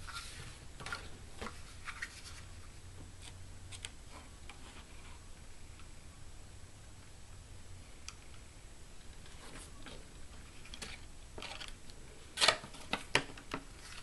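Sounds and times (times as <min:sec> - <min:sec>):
paper card rustling: 0:00.0 - 0:02.5
low steady hum: 0:00.0 - 0:14.0.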